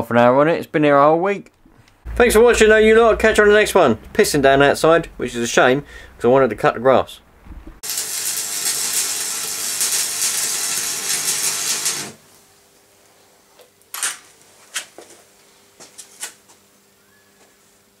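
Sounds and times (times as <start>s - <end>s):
arc welding crackle and hiss: 7.8s - 14.5s.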